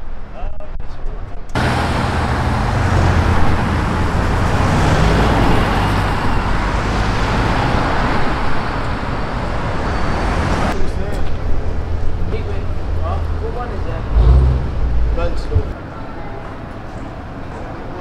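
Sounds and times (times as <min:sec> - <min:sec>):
street traffic noise: 0:00.0 - 0:18.0.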